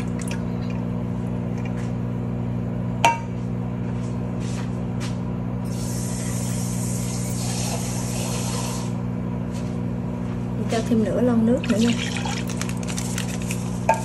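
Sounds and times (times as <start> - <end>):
microwave oven humming: 0.0 - 14.0
liquid pouring into metal pot: 11.6 - 13.6.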